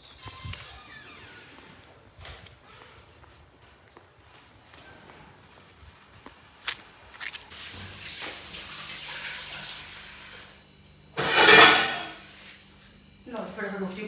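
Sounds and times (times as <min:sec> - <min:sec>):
dishes being washed: 0:07.5 - 0:10.5, 0:11.2 - 0:12.2
water running from tap into sink: 0:07.6 - 0:10.3.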